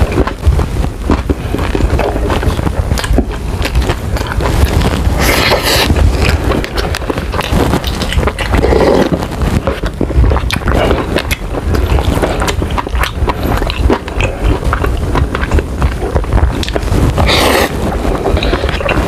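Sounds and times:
slurping noodles: 0:04.2 - 0:19.0
chewing with wet mouth clicks: 0:10.2 - 0:17.7.

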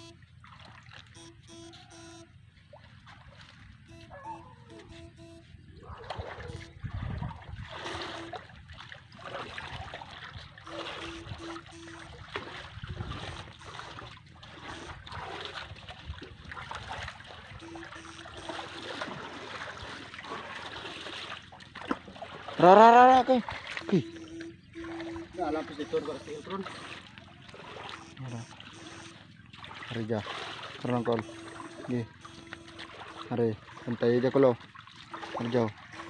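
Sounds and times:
faint short low beeps: 0:00.0 - 0:00.2, 0:01.1 - 0:02.4, 0:03.8 - 0:07.1, 0:07.8 - 0:08.5, 0:10.6 - 0:15.2, 0:17.5 - 0:19.1, 0:23.7 - 0:29.6, 0:30.9 - 0:36.0
water splashing and trickling: 0:00.0 - 0:36.0.

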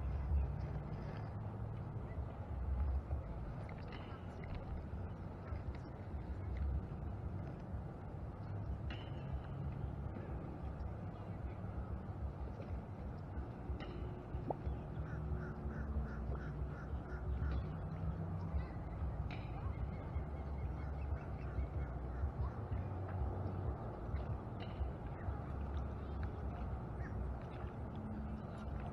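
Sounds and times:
wind rumbling on microphone: 0:00.0 - 0:28.9.

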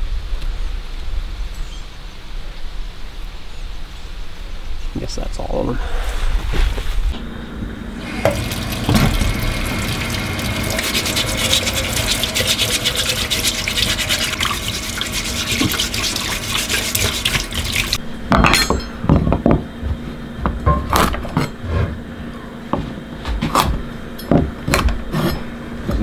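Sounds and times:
tap running into metal sink: 0:08.0 - 0:18.0
hands rubbing produce: 0:08.1 - 0:18.0.

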